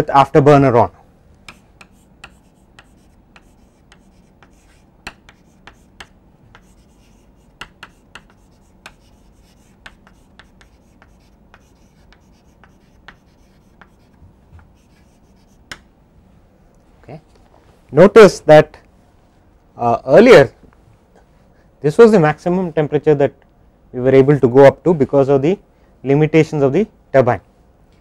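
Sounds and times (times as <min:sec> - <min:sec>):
faint steady hum: 0:00.0 - 0:28.0
chalk tapping and scratching on board: 0:01.4 - 0:15.9.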